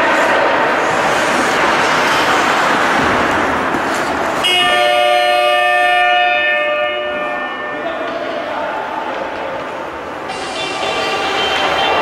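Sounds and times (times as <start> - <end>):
rushing rink noise: 0.0 - 12.0
arena horn blast: 4.4 - 8.0.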